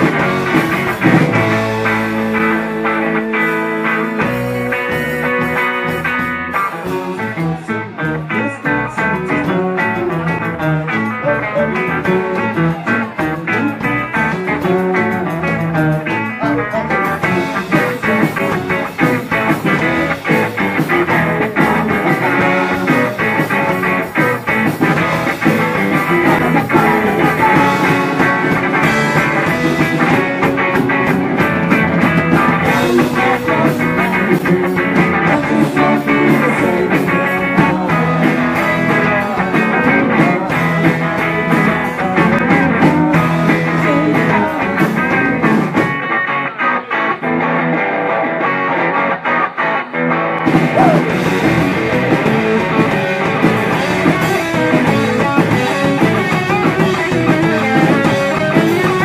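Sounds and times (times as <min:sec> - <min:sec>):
organ: 0:00.0 - 0:46.0
drum kit: 0:00.0 - 0:46.2, 0:50.4 - 0:59.0
electric guitars: 0:00.0 - 0:59.0.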